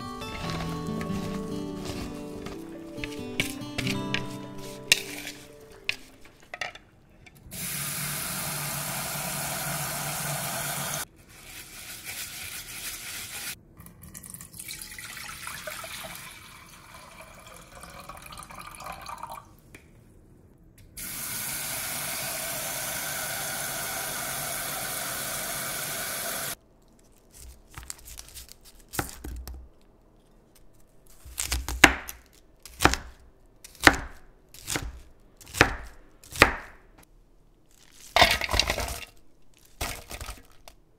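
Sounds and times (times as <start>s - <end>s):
knife chopping on cutting board: 0.3s - 6.5s, 31.3s - 36.8s.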